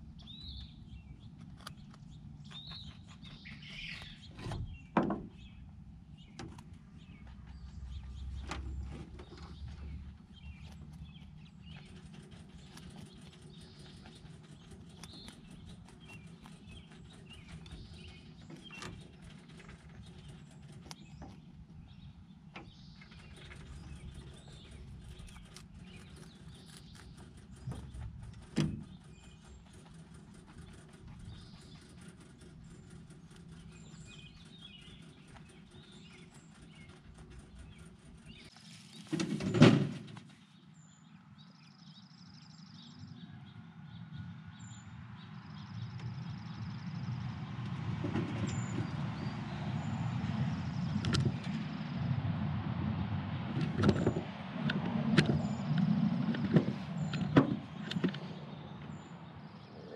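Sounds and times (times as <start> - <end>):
rabbits munching: 0.0 - 41.0, 45.8 - 59.9
small clicks and knocks: 22.5 - 39.3.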